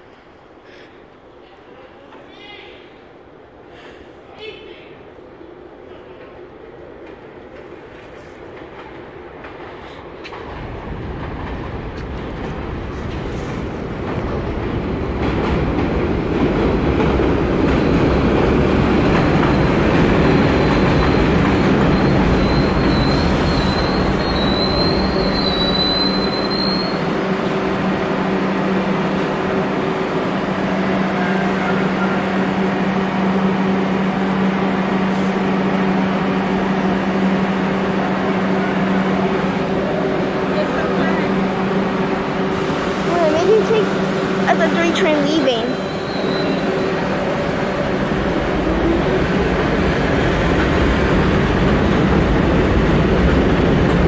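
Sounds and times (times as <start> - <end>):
train low hum: 0.0 - 54.0
train wheels rumbling on track: 5.3 - 54.0
high wheel squeal: 20.6 - 27.1, 45.6 - 47.1.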